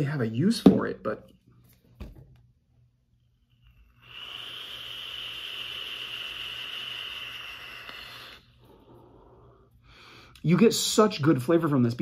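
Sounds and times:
vape atomizer hissing: 3.3s - 9.7s.

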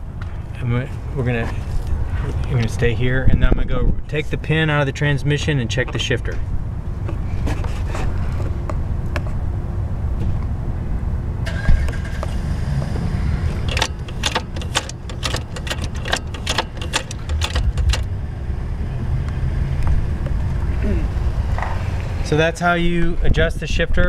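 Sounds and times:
gear shifter metallic clicks: 13.6s - 18.1s.

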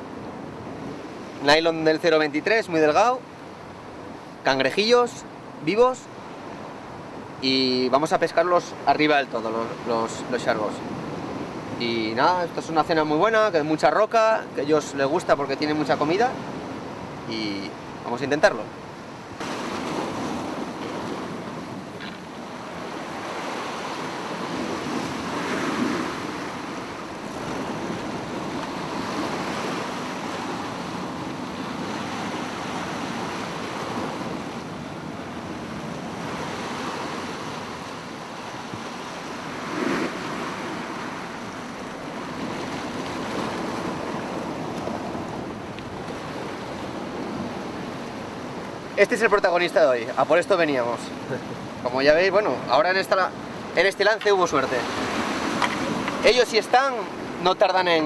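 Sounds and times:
surf washing against rocks: 0.0s - 58.0s
wind buffeting microphone: 19.0s - 49.0s.

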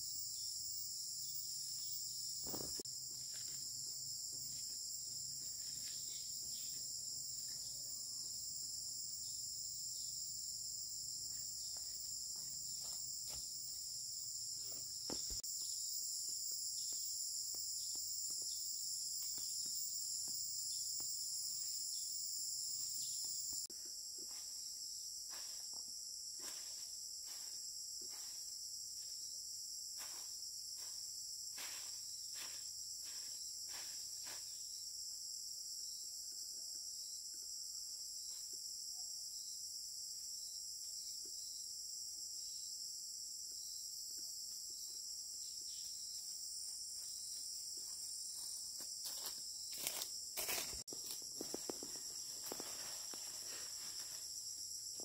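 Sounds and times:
insects trilling: 0.0s - 55.0s.

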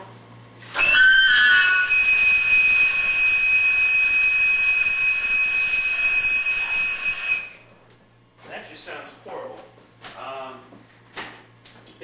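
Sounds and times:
alto saxophone shrill high note: 0.8s - 7.6s.

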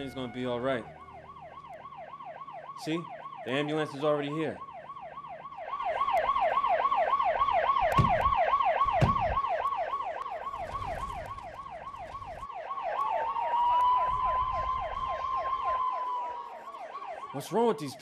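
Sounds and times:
siren fast yelp: 0.0s - 18.0s
steady siren tone: 0.0s - 18.0s
short thumps: 7.8s - 9.4s.

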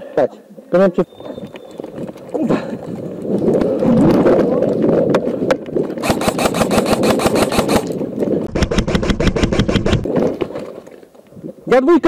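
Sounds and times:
airsoft rifle full-auto bursts: 6.0s - 8.0s.

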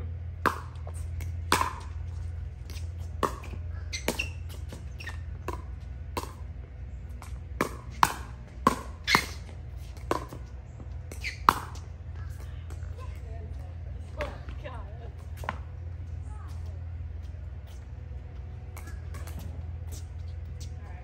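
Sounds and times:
low hum: 0.0s - 21.0s
ball bouncing on court: 0.4s - 6.5s, 7.1s - 14.6s, 15.2s - 15.8s, 18.7s - 20.7s
paddles hitting pickleball: 0.4s - 16.7s, 18.5s - 20.8s.

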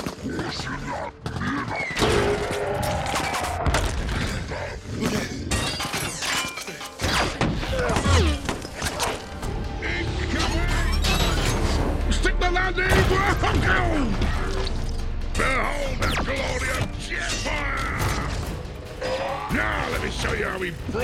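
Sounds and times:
dramatic film score: 0.0s - 21.0s
crashes and explosions: 7.0s - 21.0s.

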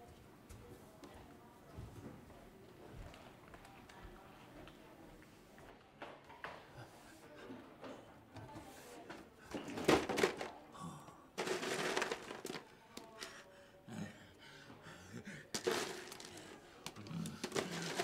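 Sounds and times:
ice cubes clattering in plastic tub: 9.6s - 10.6s, 11.4s - 12.7s, 15.6s - 18.0s.

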